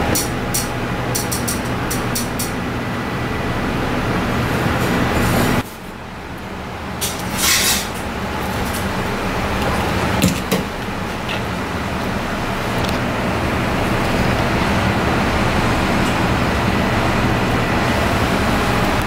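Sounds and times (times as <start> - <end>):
steady background rumble: 0.0 - 19.0.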